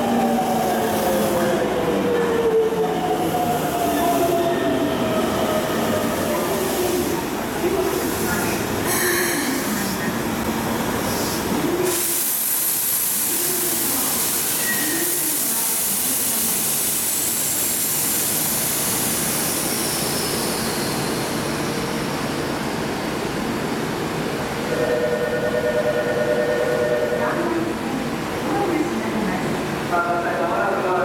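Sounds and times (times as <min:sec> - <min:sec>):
subway train rushing: 0:00.0 - 0:31.0.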